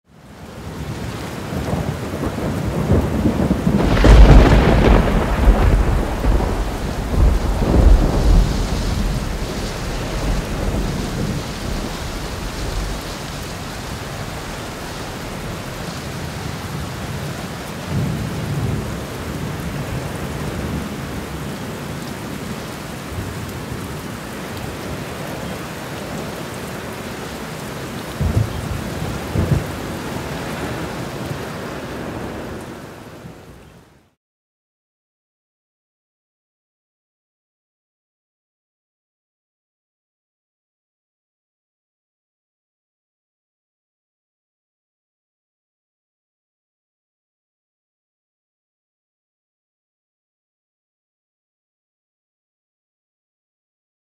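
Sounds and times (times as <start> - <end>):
steady rain: 0.1 - 34.2
thunder rumbling: 0.6 - 22.4, 28.1 - 31.3.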